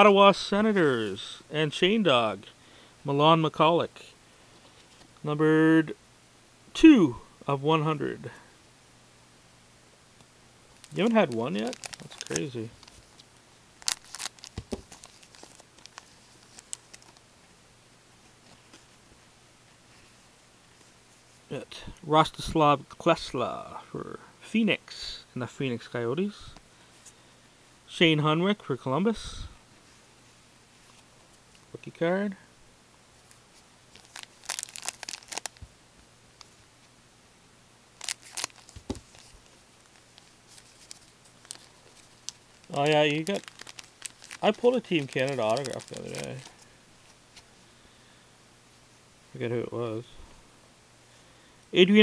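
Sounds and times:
foil wrapper tearing and crinkling: 0:10.8 - 0:13.2, 0:13.8 - 0:17.2, 0:33.9 - 0:35.6, 0:38.0 - 0:46.6
cards being handled ticks: 0:10.8 - 0:17.2, 0:33.9 - 0:35.6, 0:38.0 - 0:46.5.

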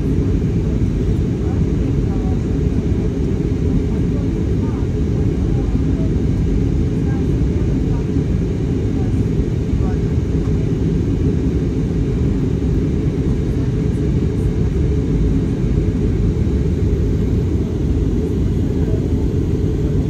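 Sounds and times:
airliner cabin engine rumble: 0:00.0 - 0:20.0.

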